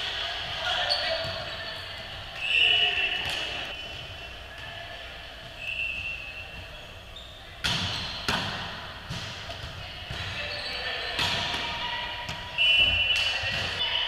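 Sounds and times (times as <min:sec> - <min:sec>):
volleyball hits echoing: 0:07.5 - 0:14.0.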